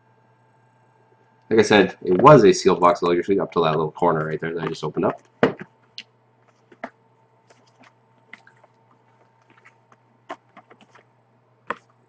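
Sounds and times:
low steady hum: 0.0s - 12.0s
cellophane wrap crinkling: 6.4s - 11.1s.

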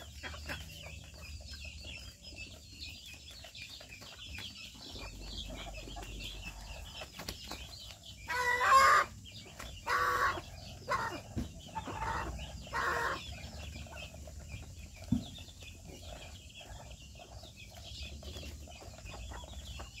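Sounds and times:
chickens calling: 0.0s - 20.0s.

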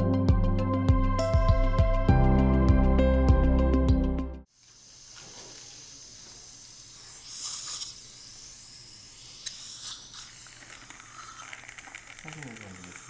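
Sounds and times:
dental suction hissing: 4.5s - 13.0s.

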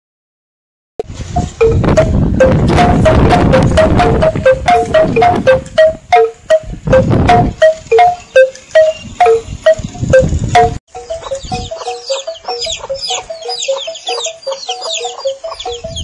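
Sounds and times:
bamboo tubes knocking: 1.0s - 10.8s
wind rumble on microphone: 1.0s - 10.8s, 11.4s - 11.8s, 15.6s - 16.0s
high chirps: 1.0s - 16.0s.

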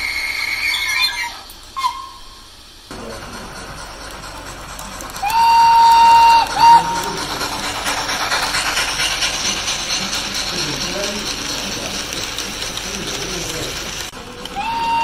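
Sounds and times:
steam whistle blasts: 0.0s - 2.5s, 5.2s - 7.2s, 14.5s - 15.0s
model train clattering past: 2.9s - 15.0s.

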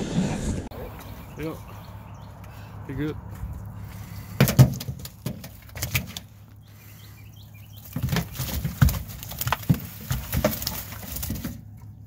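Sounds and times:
fish slapping on truck bed: 4.3s - 6.4s, 7.8s - 11.8s.

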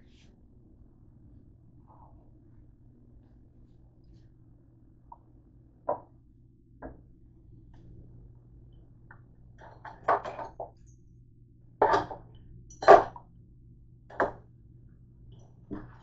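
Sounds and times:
steady low hum: 0.0s - 16.0s
handling knocks and clatters: 9.6s - 10.8s.

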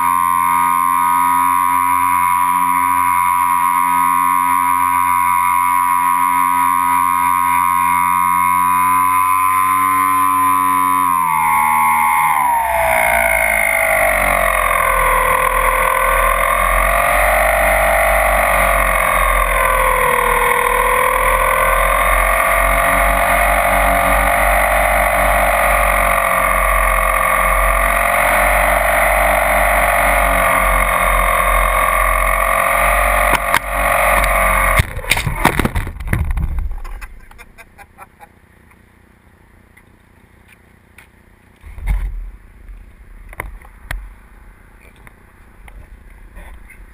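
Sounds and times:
electric motors whining: 0.0s - 36.4s
plane knocking and scraping on landing: 0.0s - 37.6s.

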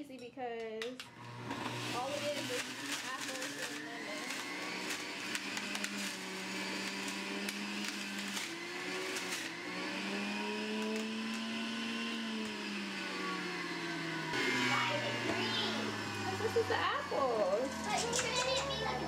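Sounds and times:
juicer motor whine: 1.0s - 19.0s.

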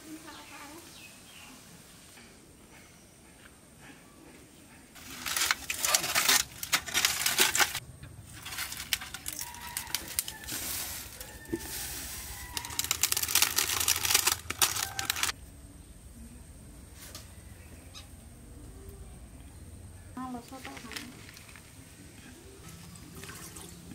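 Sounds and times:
soft rustling of leaves: 0.0s - 3.2s, 4.9s - 23.9s
leaves crinkling and crackling: 5.0s - 15.4s, 20.2s - 23.4s.

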